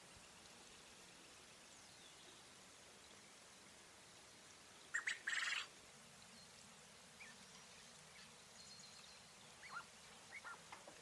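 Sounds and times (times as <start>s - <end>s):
quail rasping call: 9.6s - 11.0s.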